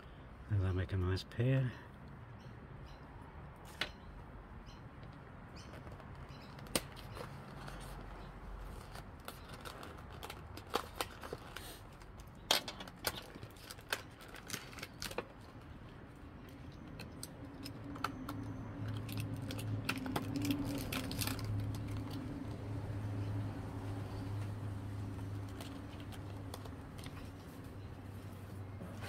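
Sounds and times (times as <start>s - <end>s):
packaging being handled: 5.7s - 15.7s, 16.9s - 22.5s, 25.0s - 28.5s.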